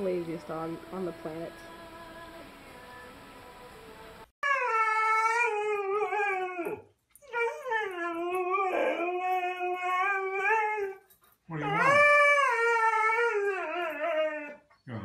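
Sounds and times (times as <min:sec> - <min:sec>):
husky howling: 0:04.4 - 0:14.7.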